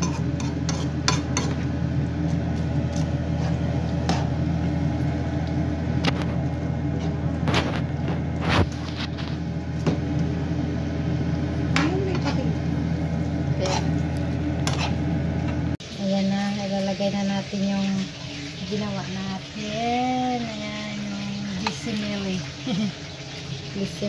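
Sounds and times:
fork clinking and scraping pan: 0.0s - 1.6s
steady low hum: 0.0s - 16.5s
vermicelli frying in oil: 0.0s - 24.0s.

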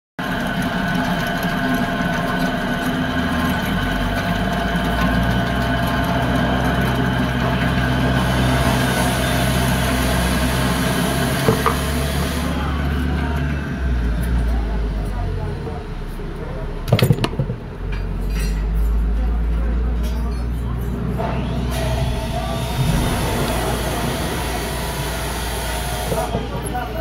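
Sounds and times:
drill press motor running: 0.2s - 14.5s, 21.0s - 27.0s
drill bit cutting hiss: 7.8s - 12.6s, 21.4s - 27.0s.

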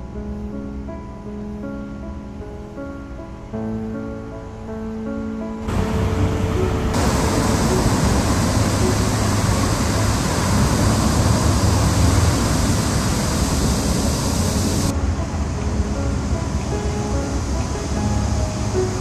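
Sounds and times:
city traffic rumble: 5.6s - 19.0s
rain hiss: 5.6s - 19.0s.

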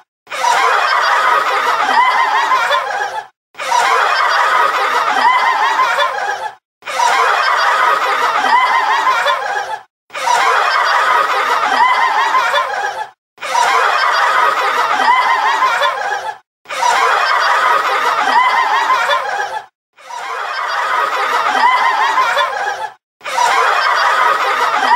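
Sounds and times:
laughter sound effect: 0.3s - 24.9s.

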